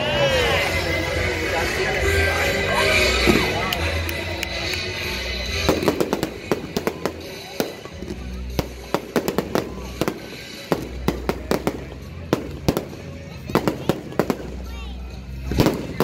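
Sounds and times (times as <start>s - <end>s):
fireworks bangs and crackling pops: 3.2s - 16.0s.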